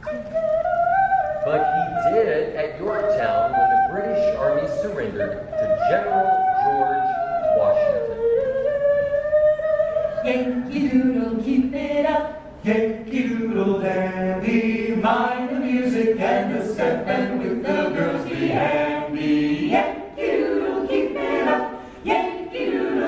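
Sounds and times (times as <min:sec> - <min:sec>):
choir singing in close harmony: 0:10.2 - 0:23.0.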